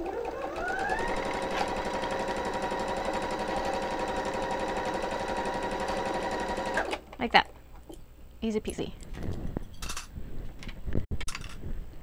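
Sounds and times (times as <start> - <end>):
sewing machine stitching: 0.0 - 7.0.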